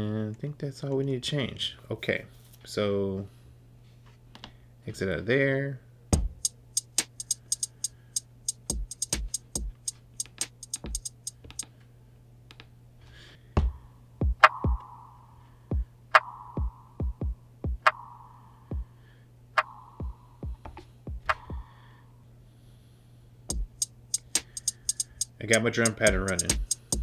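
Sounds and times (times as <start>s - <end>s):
trap drum loop: 6.2s - 11.6s, 13.6s - 15.0s, 15.7s - 19.0s, 19.6s - 21.7s, 23.5s - 27.0s
quick ticks: 6.4s - 11.6s, 23.5s - 27.0s.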